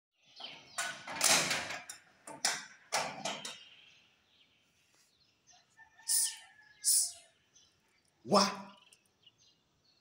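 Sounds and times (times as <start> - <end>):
metal grille rattling and clanking: 0.4 - 3.7.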